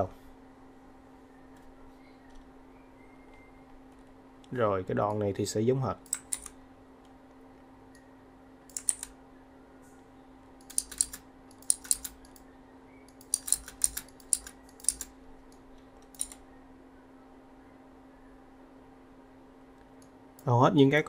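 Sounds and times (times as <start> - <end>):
computer keyboard typing: 8.7 - 9.1, 10.6 - 12.4, 13.2 - 15.1.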